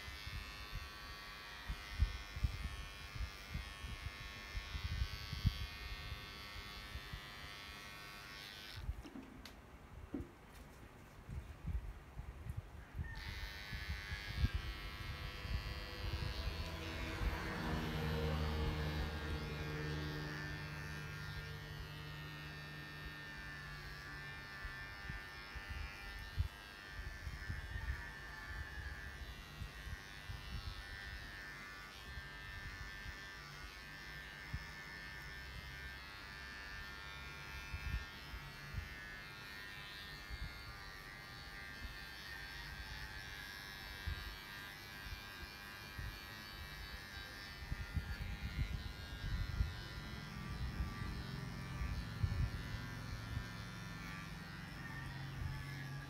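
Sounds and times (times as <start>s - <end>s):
electric clippers buzzing: 0.0s - 10.7s, 13.0s - 56.0s.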